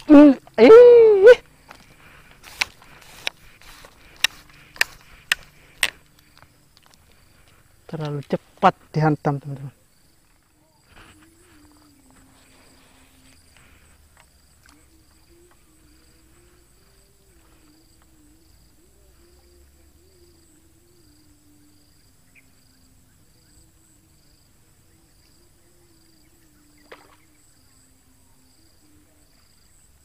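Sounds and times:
insect trill: 0:00.0 - 0:30.0
pulsing insect chirp: 0:00.0 - 0:30.0
low wavering hum: 0:10.8 - 0:29.4.

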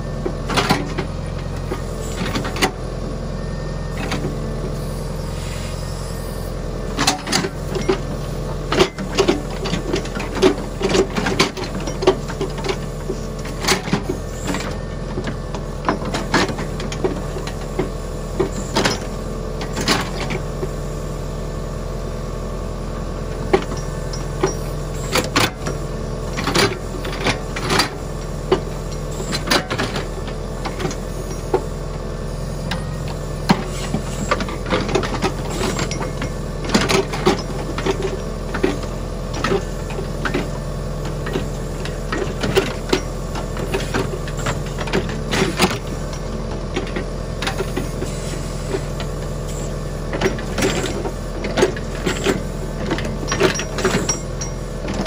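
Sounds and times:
tractor diesel engine running: 0:00.0 - 0:55.0
backhoe bucket clanks and knocks: 0:06.9 - 0:20.5, 0:23.4 - 0:32.0, 0:32.8 - 0:48.2, 0:50.0 - 0:55.0.

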